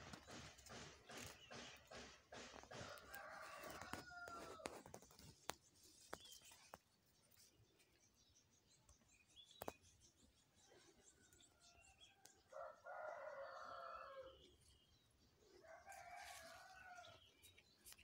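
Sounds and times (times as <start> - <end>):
faint rooster crowing: 2.8 - 4.9, 11.3 - 14.5, 15.6 - 17.3.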